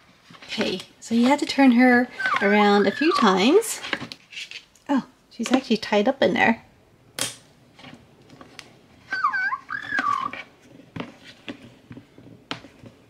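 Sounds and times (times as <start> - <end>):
toy electronic warbling call: 2.1 - 3.6, 9.1 - 10.4.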